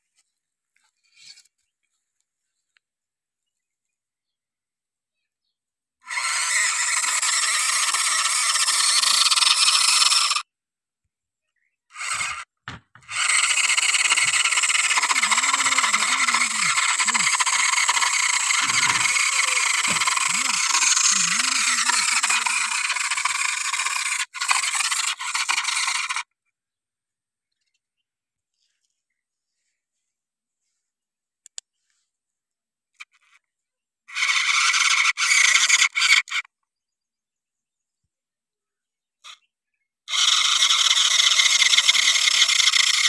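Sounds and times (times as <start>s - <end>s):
electric motor grinding rasp: 6.1s - 10.4s, 11.9s - 26.3s, 40.1s - 43.0s.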